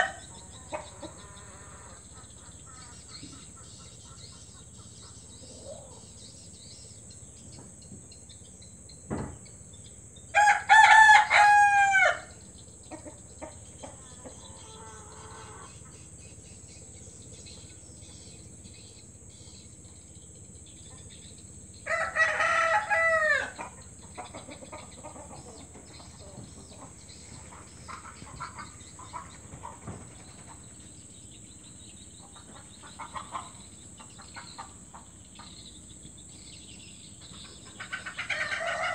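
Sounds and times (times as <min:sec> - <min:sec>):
rooster crowing: 0:00.0 - 0:02.1, 0:10.3 - 0:12.4, 0:14.3 - 0:15.8, 0:21.8 - 0:23.8, 0:38.2 - 0:38.9.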